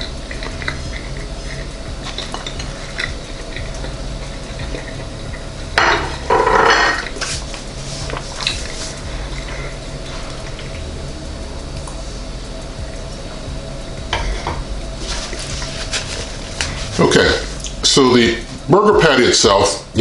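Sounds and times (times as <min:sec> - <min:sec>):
dishes clattering: 0:05.8 - 0:07.2
dishes clinking: 0:05.8 - 0:07.2.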